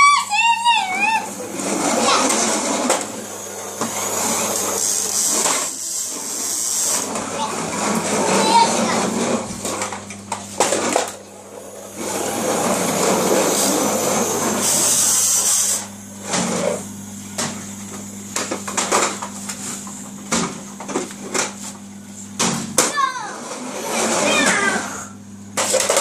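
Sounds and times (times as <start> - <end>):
toy truck wheels rolling on floor: 0.8 - 11.2, 12.0 - 14.0, 23.4 - 26.0.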